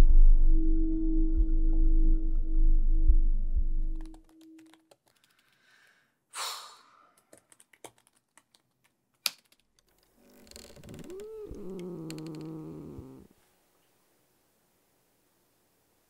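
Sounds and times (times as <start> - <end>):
low held tone: 0.0 - 4.5
laptop keyboard typing: 4.0 - 5.7, 7.2 - 10.0.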